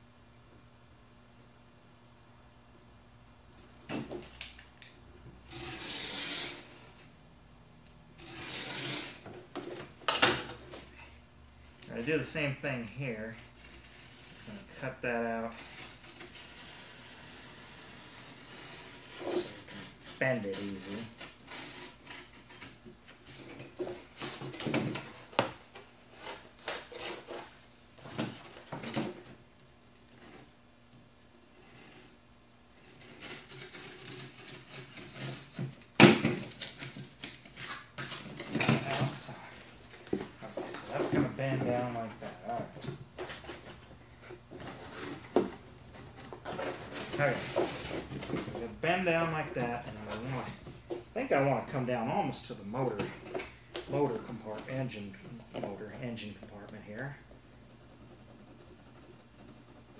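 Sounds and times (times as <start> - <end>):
cardboard scraping: 5.4 - 7.0, 8.2 - 9.8, 13.2 - 29.2, 32.8 - 51.7.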